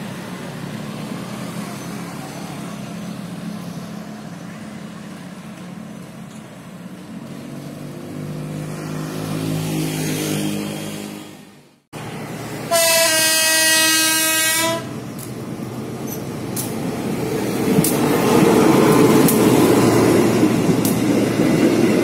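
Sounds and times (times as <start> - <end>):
diesel locomotive horn blast: 12.6 - 15.0.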